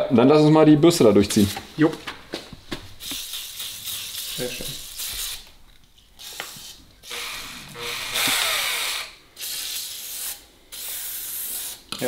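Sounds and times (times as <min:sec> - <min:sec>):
aerosol can spraying: 0:03.0 - 0:05.5, 0:06.2 - 0:11.9
cordless drill spinning: 0:06.2 - 0:09.2.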